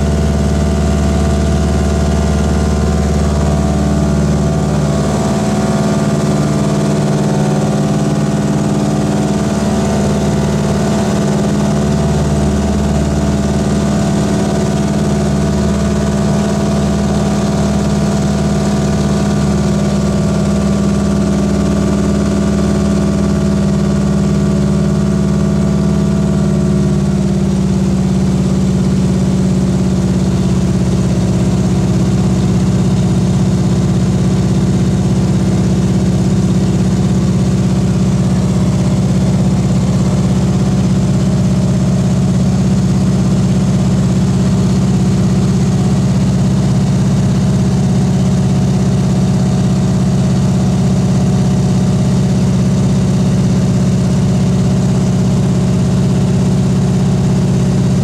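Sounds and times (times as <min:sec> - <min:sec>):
propeller plane engine drone: 0:00.0 - 0:58.0.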